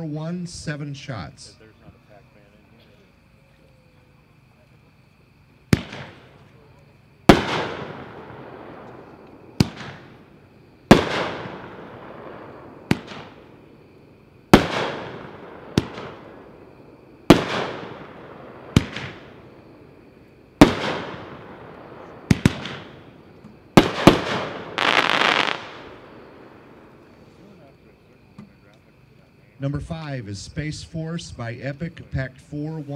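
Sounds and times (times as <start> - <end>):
firework shell breaks echoing: 5.7 - 6.4, 7.3 - 10.2, 10.9 - 13.6, 14.5 - 19.6, 20.6 - 27.0.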